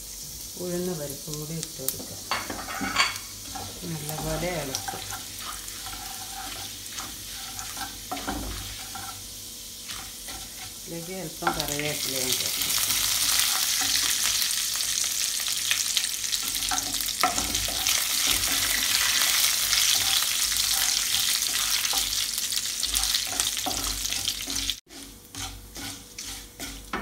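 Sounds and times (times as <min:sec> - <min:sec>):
spices sizzling in hot oil: 0:00.0 - 0:27.0
wooden spatula scraping a pan: 0:02.0 - 0:14.4, 0:22.8 - 0:27.0.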